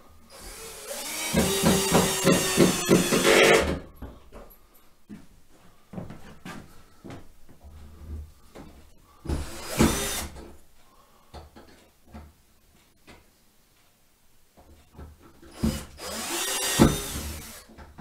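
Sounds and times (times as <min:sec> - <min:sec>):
cordless drill driving screw: 0:09.5 - 0:10.3, 0:15.6 - 0:17.6.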